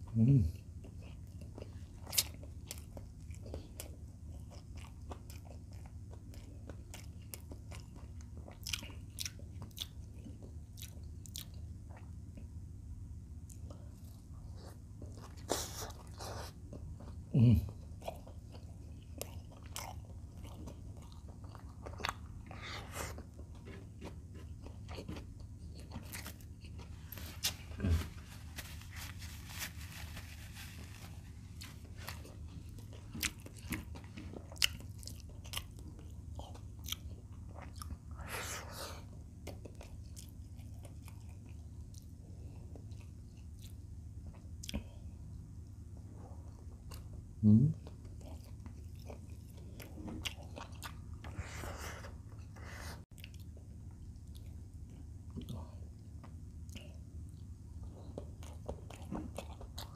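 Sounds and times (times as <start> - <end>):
person chewing food: 0.5 - 12.7, 13.3 - 59.9
tissue rustling: 27.0 - 32.2.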